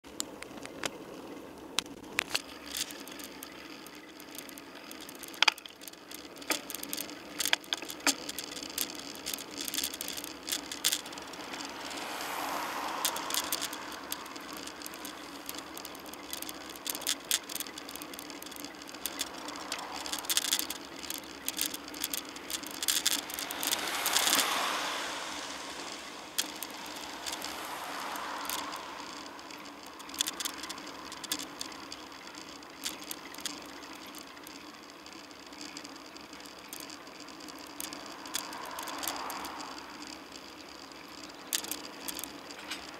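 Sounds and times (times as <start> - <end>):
road noise: 0.0 - 42.9
bicycle rattling clicks: 0.1 - 42.9
cars passing: 8.1 - 33.6, 37.6 - 42.9.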